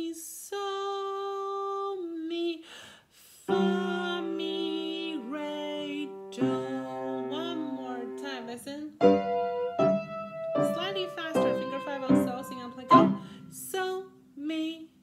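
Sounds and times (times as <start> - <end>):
woman singing held notes: 3.4 - 8.8, 10.7 - 15.0
keyboard notes: 3.5 - 13.6.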